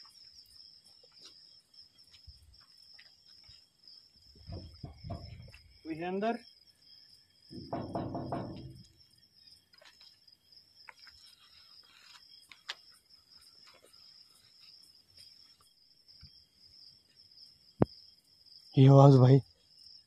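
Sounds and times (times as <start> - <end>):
crickets trilling: 0.0 - 20.0
short muffled thump: 4.4 - 5.6
faint ticks: 10.8 - 12.9.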